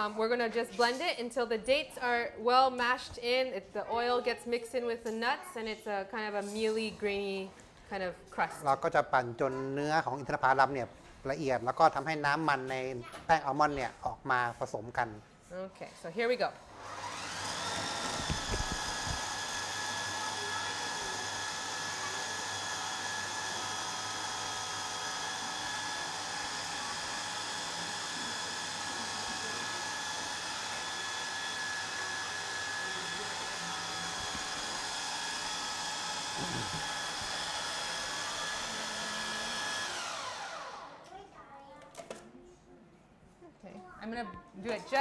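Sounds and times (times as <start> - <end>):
food processor motor whining: 16.7 - 41.0.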